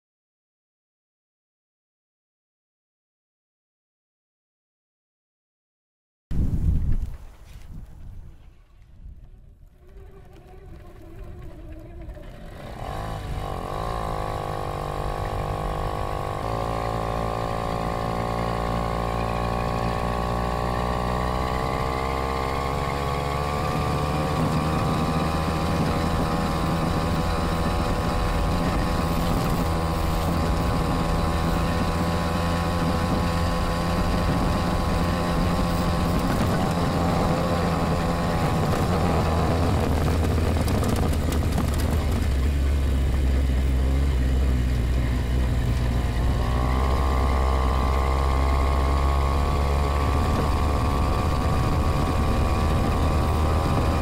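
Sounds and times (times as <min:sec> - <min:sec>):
wind and road rumble: 0:06.3 - 0:54.0
moped engine running: 0:09.8 - 0:54.0.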